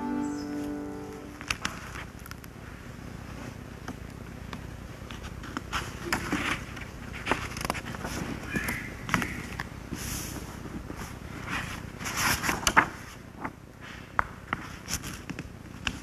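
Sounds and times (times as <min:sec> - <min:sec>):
low steady hum: 0:00.0 - 0:07.4.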